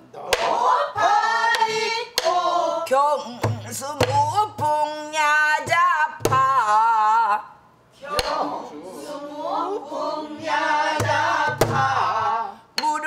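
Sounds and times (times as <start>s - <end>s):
woman singing with vibrato: 0.5s - 13.0s
barrel drum struck with stick: 8.2s - 8.4s, 10.9s - 12.0s.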